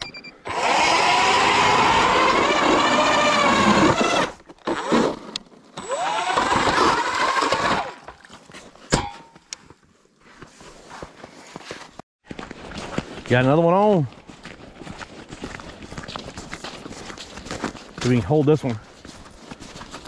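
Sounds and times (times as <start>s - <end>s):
electric ice auger motor whining: 0.5s - 8.0s.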